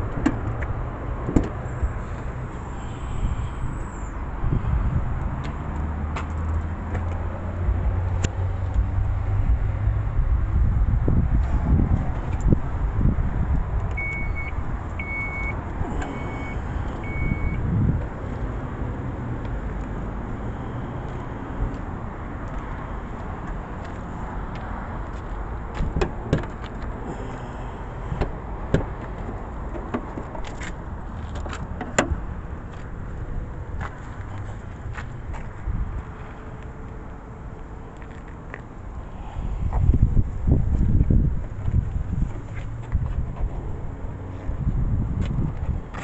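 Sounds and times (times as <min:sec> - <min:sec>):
steady low rumble: 0:00.0 - 0:05.6, 0:06.7 - 0:26.0
electronic warning chime beeping: 0:14.0 - 0:17.6.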